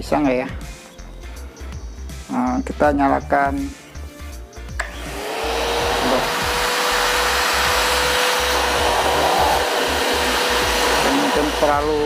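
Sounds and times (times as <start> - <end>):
vacuum cleaner motor whining: 4.8 - 12.0.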